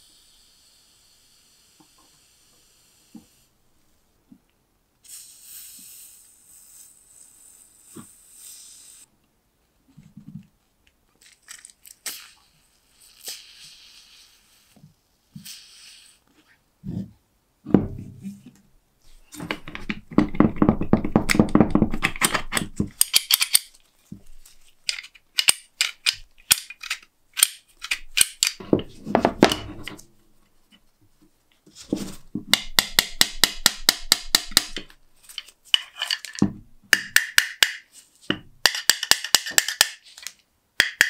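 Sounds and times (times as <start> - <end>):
aerosol spray hissing: 5.0 - 9.1.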